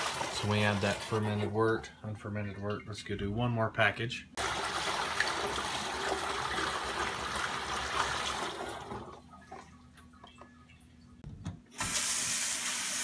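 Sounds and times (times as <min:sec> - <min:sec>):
water pouring through plastic funnel: 0:00.0 - 0:01.5, 0:04.4 - 0:10.2.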